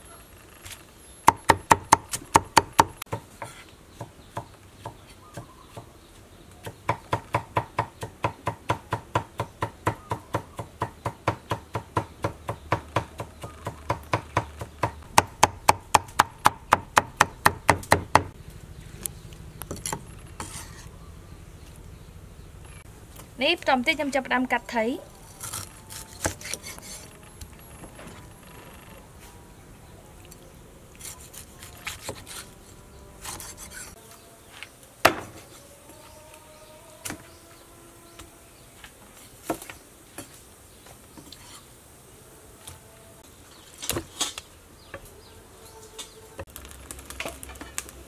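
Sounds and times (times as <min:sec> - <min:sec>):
cleaver chopping on wooden board: 0:06.6 - 0:18.3, 0:35.0 - 0:35.4.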